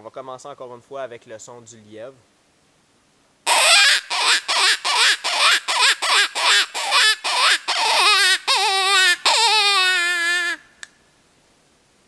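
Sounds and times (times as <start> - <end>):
predator call imitating hare cries: 3.5 - 10.6.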